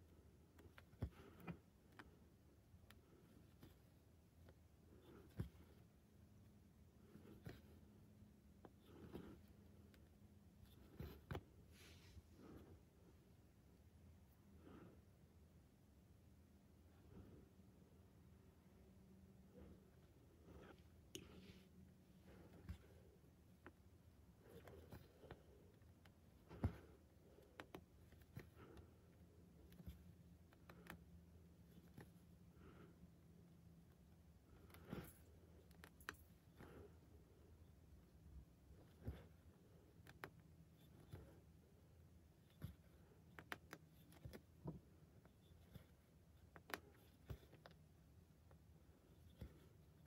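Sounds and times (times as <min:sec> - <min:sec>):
thread rasping through cloth: 0:00.4 - 0:12.9, 0:19.5 - 0:32.9, 0:33.6 - 0:50.0
needle clicking through fabric: 0:24.4 - 0:31.1, 0:42.4 - 0:47.9.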